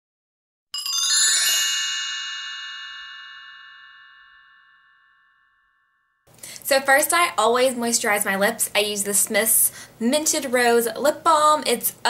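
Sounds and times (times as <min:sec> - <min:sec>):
bright chime jingle: 0:00.8 - 0:06.2.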